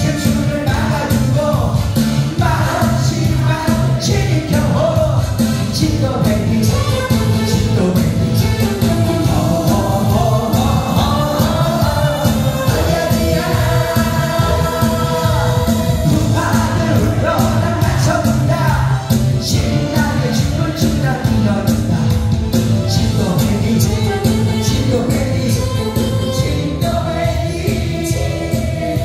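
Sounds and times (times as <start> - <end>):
karaoke backing track with beat: 0.0 - 29.0
person singing into microphone: 0.0 - 29.0.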